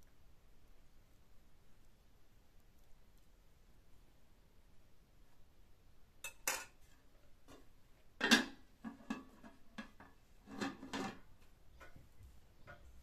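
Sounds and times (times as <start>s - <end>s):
metal spoon clinking on pot: 6.2s - 6.8s
metal lid clanking on pot: 8.2s - 11.2s.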